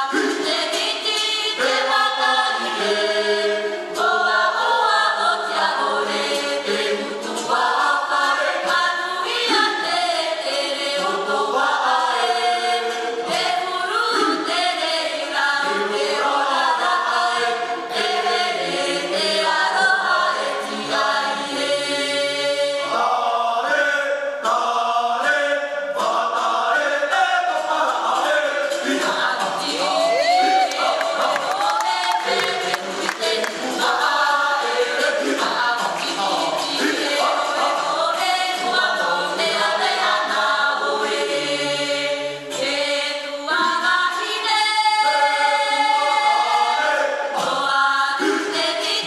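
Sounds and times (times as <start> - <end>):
choir singing a cappella: 0.0 - 49.0.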